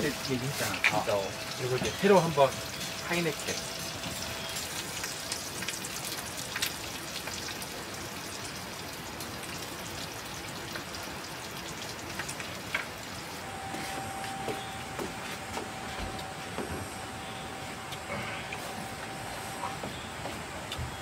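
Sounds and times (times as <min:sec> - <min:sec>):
pork sizzling in a frying pan: 0:00.0 - 0:15.8.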